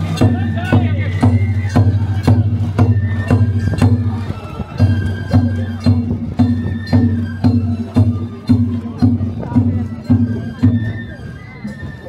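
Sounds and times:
taiko drum strikes: 0.0s - 4.2s
bamboo flute melody: 0.0s - 12.0s.

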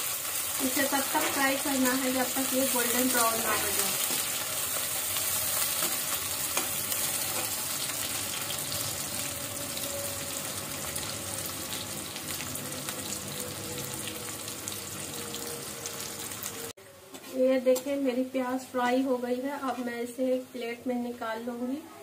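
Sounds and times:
onions sizzling in hot oil: 0.0s - 16.7s.

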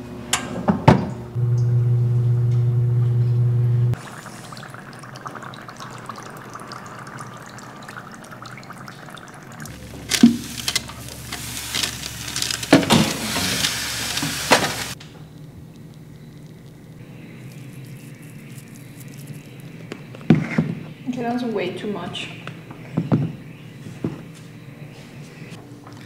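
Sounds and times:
dry ice fizzing: 3.9s - 19.9s
metal tray clanking and scraping: 9.9s - 14.9s
oven door opening: 9.9s - 14.9s.

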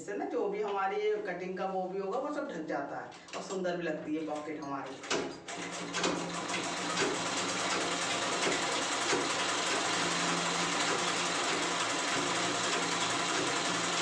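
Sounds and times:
sewing machine stitching: 4.9s - 14.0s.

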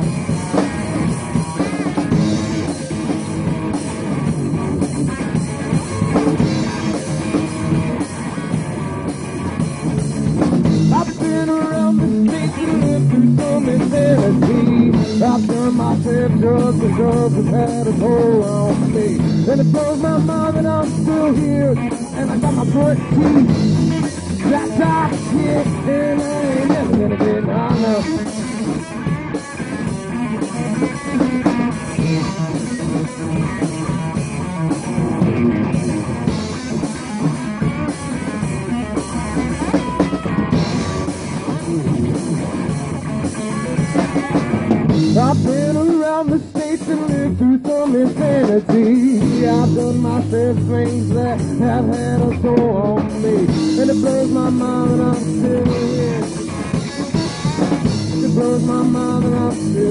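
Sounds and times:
drum kit: 0.0s - 59.9s
guitar: 0.0s - 59.9s
person singing: 10.9s - 29.0s, 45.0s - 59.9s.

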